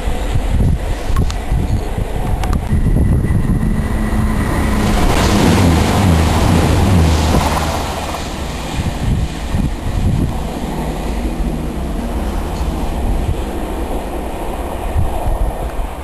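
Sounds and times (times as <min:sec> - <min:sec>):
train wheels rushing on rail: 0:00.0 - 0:16.0
diesel engines droning: 0:02.3 - 0:16.0.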